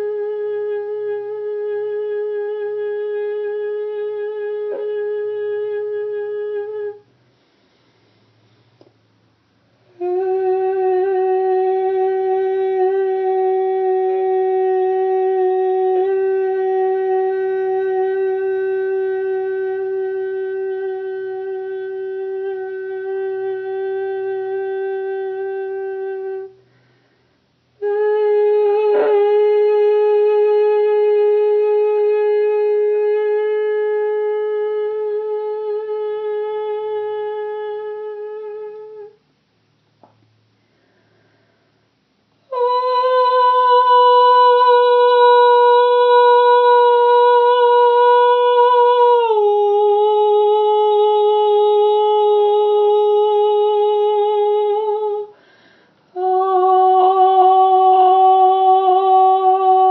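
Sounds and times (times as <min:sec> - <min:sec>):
person singing sustained notes: 0:09.9 - 0:26.6, 0:27.8 - 0:39.2, 0:56.1 - 0:59.9.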